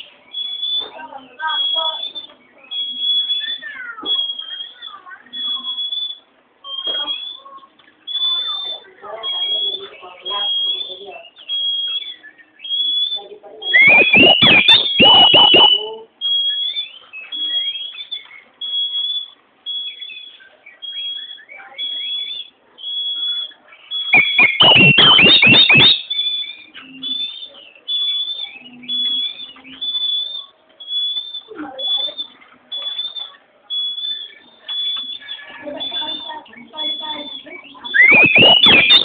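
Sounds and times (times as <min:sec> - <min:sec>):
bird high whistle: 0:00.4 - 0:39.0
bird rapid downward notes: 0:13.8 - 0:15.8, 0:24.2 - 0:26.1, 0:37.9 - 0:39.0
sharp clicks: 0:13.8 - 0:15.8, 0:24.2 - 0:26.0, 0:38.0 - 0:39.0.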